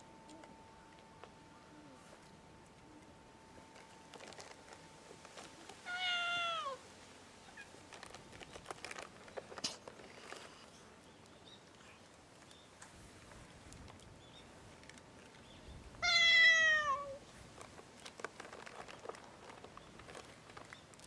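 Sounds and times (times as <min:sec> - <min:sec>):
cats eating food: 0:00.1 - 0:21.0
cat meowing: 0:05.8 - 0:06.8, 0:16.0 - 0:17.2.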